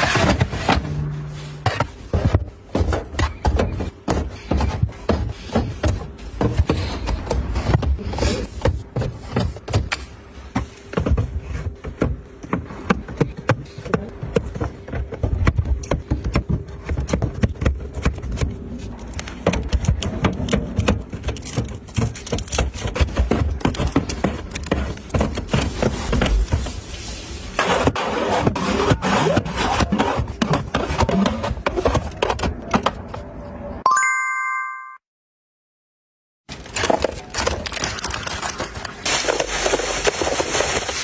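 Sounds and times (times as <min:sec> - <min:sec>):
cartons tapping and scraping on shelf: 0:01.6 - 0:18.7, 0:19.3 - 0:26.8.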